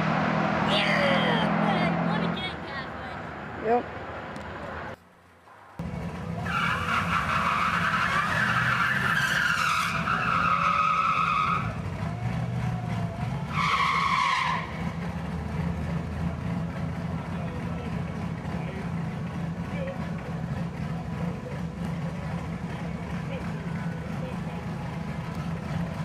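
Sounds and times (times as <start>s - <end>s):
car engines idling: 0.0s - 26.0s
tyres screeching: 6.4s - 15.0s.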